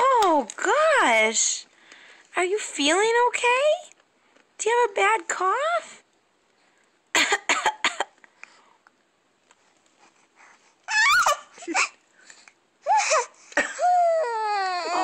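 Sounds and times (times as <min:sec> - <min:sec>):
baby coughing: 0:07.2 - 0:08.1
baby whimpering cry: 0:10.9 - 0:12.0, 0:12.8 - 0:15.0
baby vocal sounds: 0:12.8 - 0:15.0.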